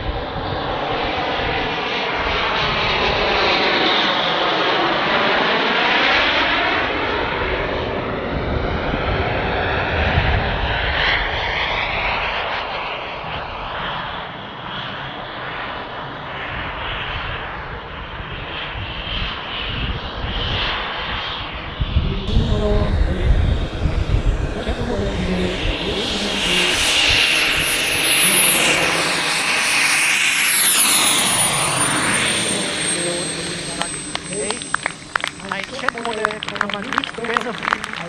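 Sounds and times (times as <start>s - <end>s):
model jet turbine engine: 22.3s - 38.0s.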